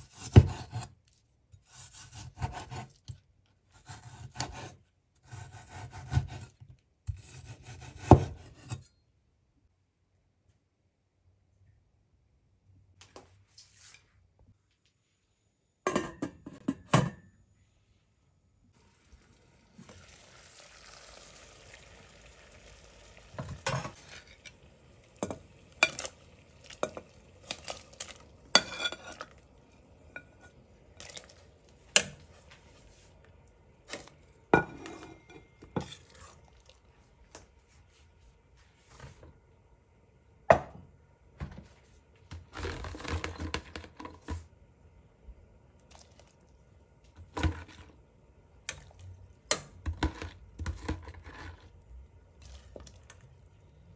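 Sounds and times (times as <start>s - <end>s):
water simmering in a pot: 18.8s - 37.9s, 45.0s - 53.9s.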